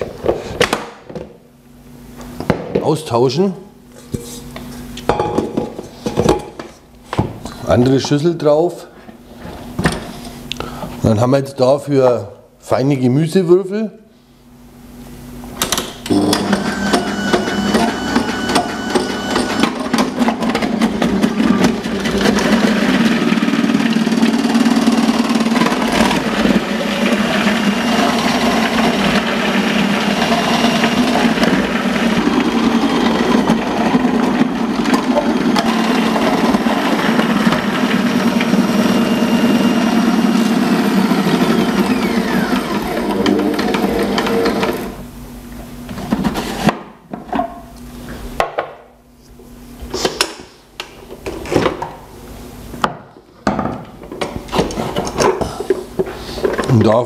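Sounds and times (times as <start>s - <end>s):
kitchen machine motor hum: 16.0s - 46.7s.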